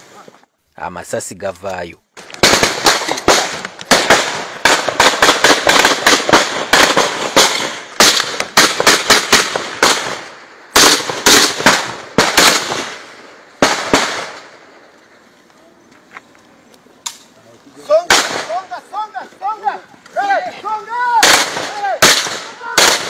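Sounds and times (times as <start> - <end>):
rapid gunfire: 2.4 - 10.2, 10.8 - 12.9, 21.2 - 23.0.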